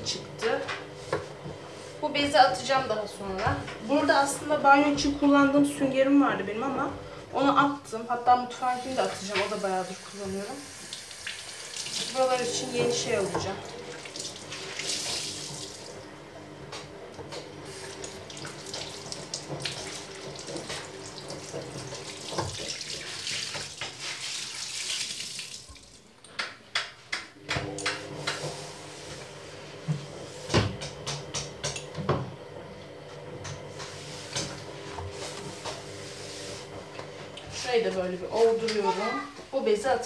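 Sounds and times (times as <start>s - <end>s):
cloth rinsed and wrung: 8.6s - 16.0s, 17.7s - 26.1s
tap water running into basin: 8.7s - 16.1s, 17.2s - 26.4s
cloth knocking and rubbing basin: 18.7s - 24.4s.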